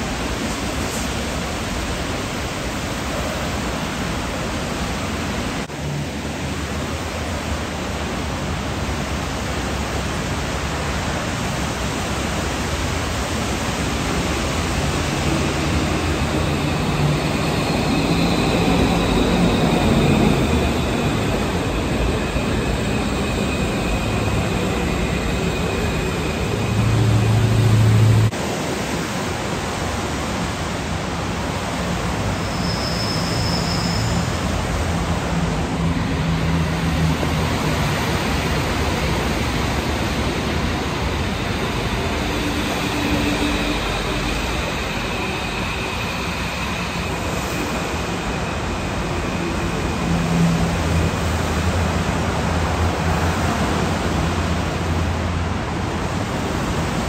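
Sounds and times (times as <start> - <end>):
rain hiss: 0.0 - 57.0
train humming tones: 3.4 - 57.0.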